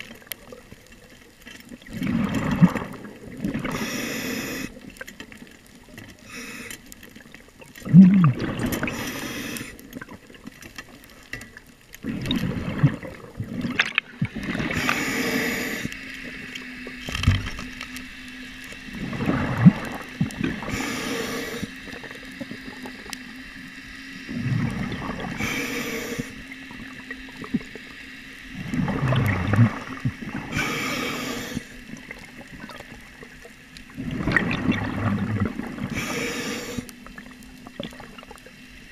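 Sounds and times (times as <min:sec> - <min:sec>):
bubbling exhale rumble: 0:01.7 - 0:05.0, 0:06.1 - 0:10.6, 0:12.0 - 0:16.4, 0:18.9 - 0:23.1, 0:24.3 - 0:27.8, 0:28.5 - 0:38.9
regulator inhale hiss: 0:03.6 - 0:04.8, 0:06.2 - 0:07.0, 0:08.8 - 0:09.9, 0:14.6 - 0:16.2, 0:20.6 - 0:22.2, 0:24.3 - 0:26.6, 0:30.4 - 0:32.0, 0:35.8 - 0:37.0.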